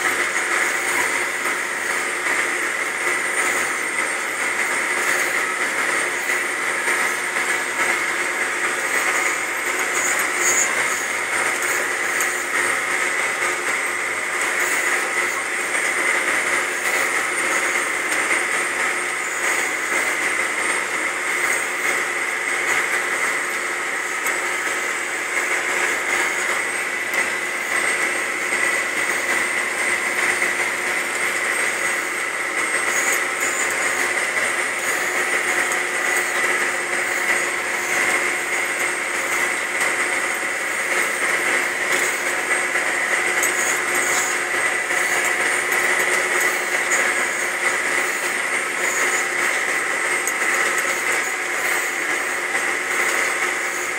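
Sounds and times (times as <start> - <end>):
steady whine: 0.0 - 53.9
tractor engine droning: 0.0 - 53.9.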